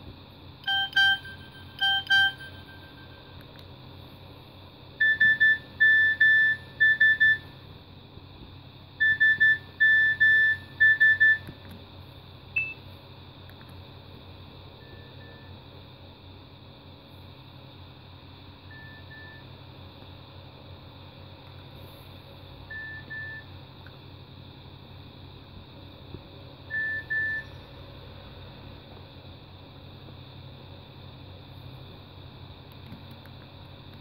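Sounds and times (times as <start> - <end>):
two-note electronic beep: 0.6 - 3.4.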